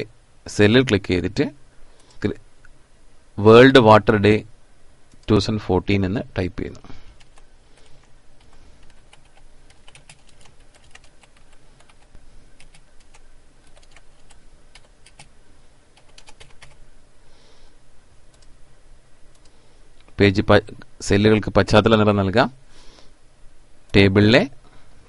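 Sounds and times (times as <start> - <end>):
computer keyboard typing: 7.2 - 7.4, 8.4 - 15.3, 16.0 - 16.8, 18.3 - 18.5.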